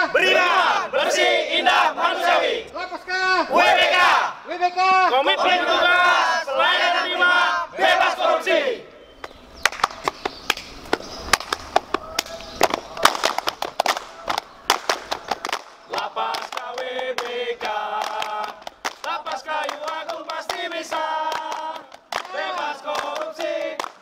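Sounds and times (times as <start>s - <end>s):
group chanting: 0.0s - 2.8s, 3.4s - 9.0s, 14.0s - 24.0s
group clapping: 9.2s - 24.0s.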